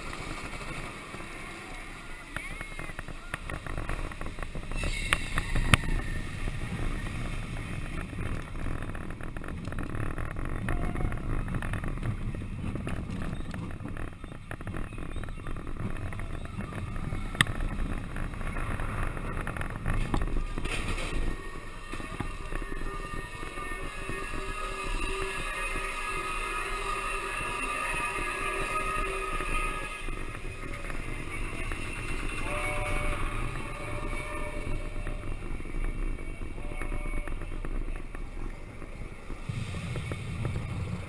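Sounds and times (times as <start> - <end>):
roller coaster wheels rumbling on rails: 0.0 - 41.0
sharp track clicks: 0.0 - 41.0.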